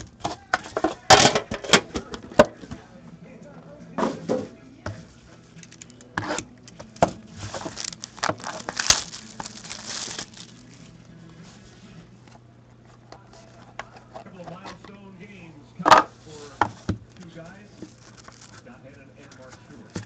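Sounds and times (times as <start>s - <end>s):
plastic wrap tearing and crinkling: 5.6s - 11.6s, 17.8s - 18.7s.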